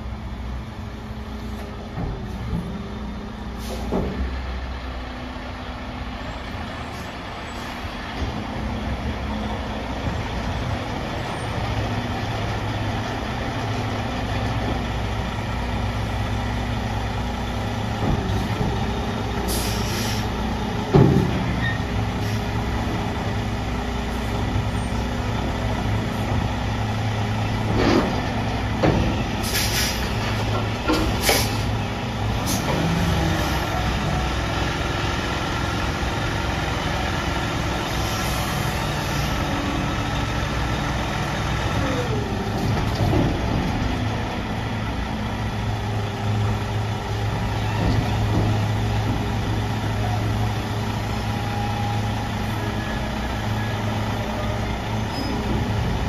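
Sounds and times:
garbage truck idling: 0.0s - 56.0s
air hiss bursts: 19.5s - 20.3s.

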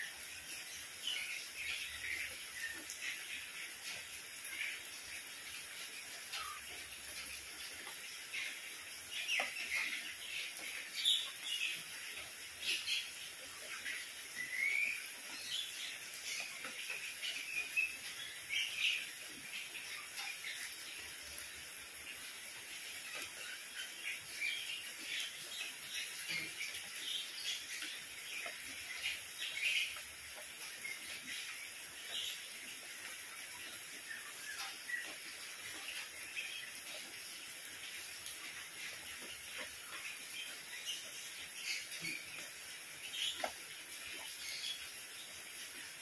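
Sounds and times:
rain on paving and foliage: 0.0s - 46.0s
songbirds chirping: 0.0s - 46.0s.

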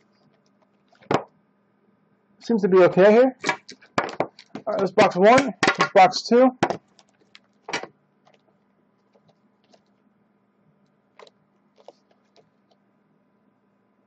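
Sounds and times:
box knocking on glass table: 1.1s - 1.3s, 3.5s - 5.9s, 6.6s - 6.9s.

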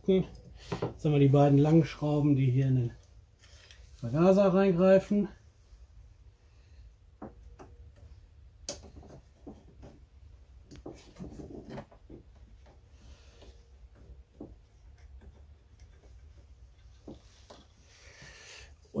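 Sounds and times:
small clicks and knocks of parts: 2.9s - 3.9s, 7.2s - 10.0s, 13.4s - 17.8s.

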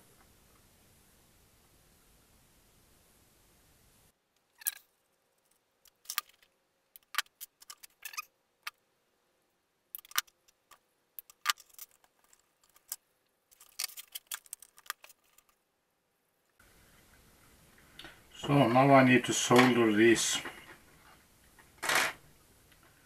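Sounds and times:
small parts clicking on wooden workbench: 4.5s - 8.8s, 10.0s - 15.6s.

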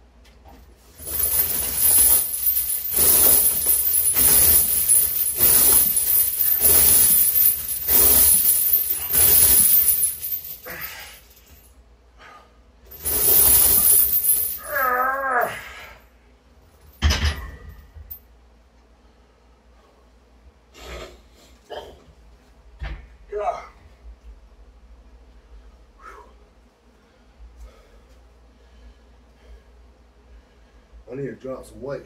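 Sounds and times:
chains rattling and clanking: 1.0s - 11.6s, 12.9s - 14.9s
man groaning: 10.6s - 11.1s, 14.6s - 16.0s, 23.3s - 23.8s.

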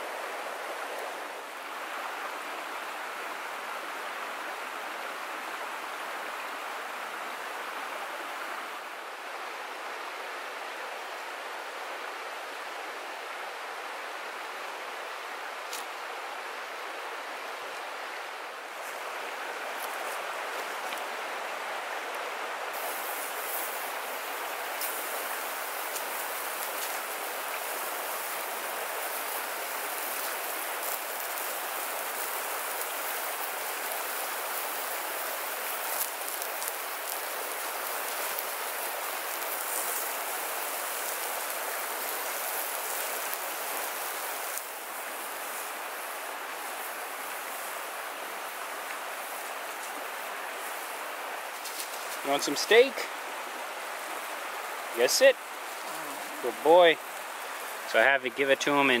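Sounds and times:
fire pops and crackles: 22.7s - 52.9s
meat sizzling on a grill: 22.7s - 53.0s, 53.8s - 59.0s.

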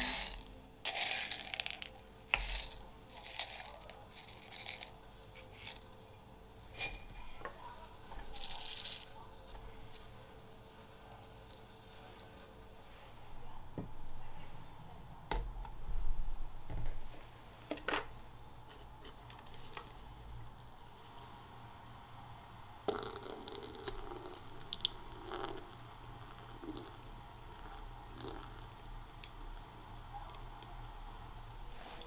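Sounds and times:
water trickling onto paper filter: 22.9s - 30.9s.

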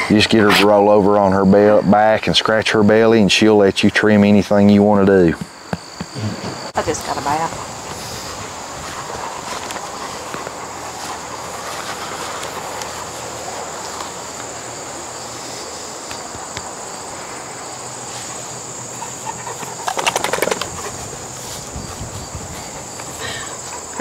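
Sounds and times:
insects trilling: 0.0s - 24.0s
dog shaking head ears flapping: 19.9s - 20.8s.

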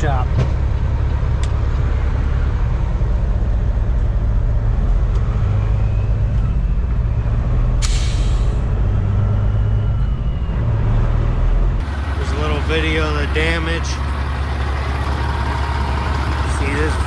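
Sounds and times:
truck diesel engine running: 0.0s - 17.0s
sharp hiss of air: 7.8s - 8.6s.

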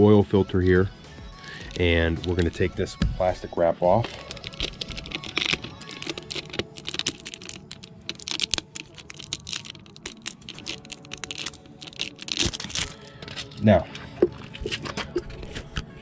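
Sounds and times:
plastic wrap crackling: 3.8s - 15.6s.

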